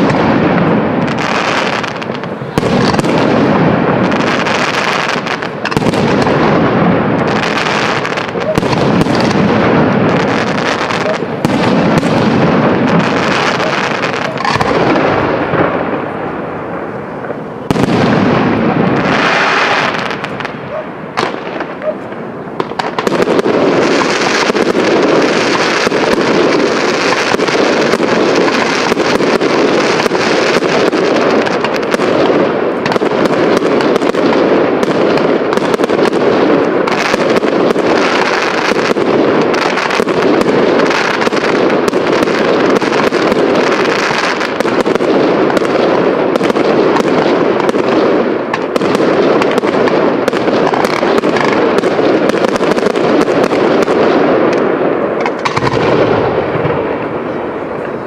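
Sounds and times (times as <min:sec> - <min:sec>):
fireworks bursts and cracks: 0:00.0 - 0:58.0.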